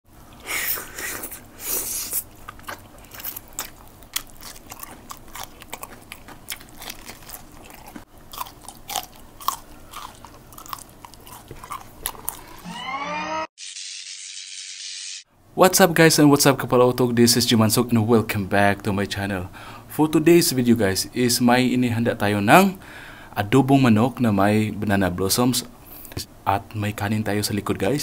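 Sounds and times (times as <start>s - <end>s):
wet chewing and lip smacks: 2.0s - 12.6s
crisp bites: 2.5s - 12.6s.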